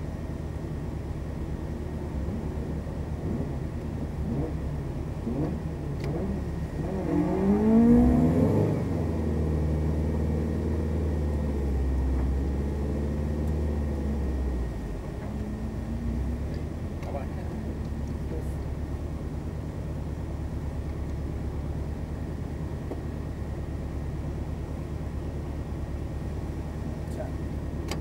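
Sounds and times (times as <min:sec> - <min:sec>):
car engine revving: 0:02.1 - 0:22.6.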